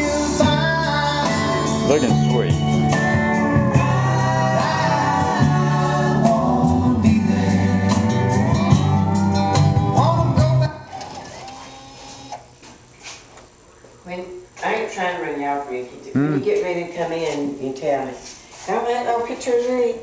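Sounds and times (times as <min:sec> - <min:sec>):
song playing on car stereo: 0:00.0 - 0:11.3.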